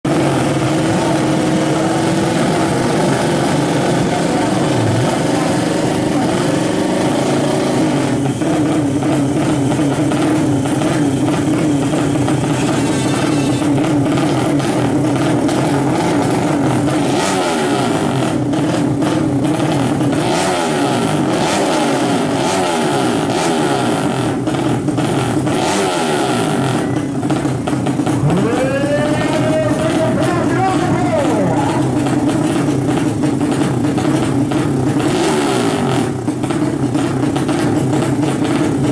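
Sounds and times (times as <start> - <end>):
motorcycle engines revving: 0.0 - 38.9.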